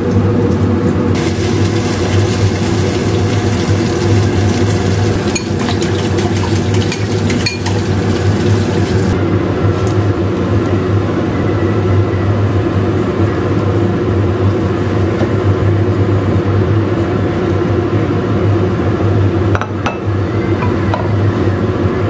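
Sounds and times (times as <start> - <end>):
loud mechanical hum: 0.0 - 22.0.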